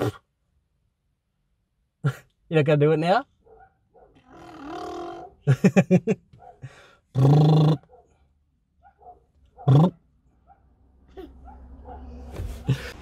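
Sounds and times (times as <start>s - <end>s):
person mock lion roar: 7.1s - 7.9s, 9.6s - 10.0s.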